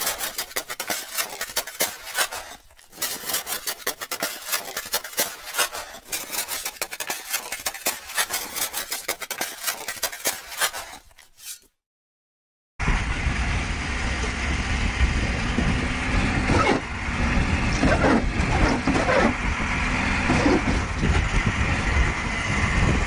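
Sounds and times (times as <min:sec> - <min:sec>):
snow and ice sliding off roof: 0:00.0 - 0:11.7.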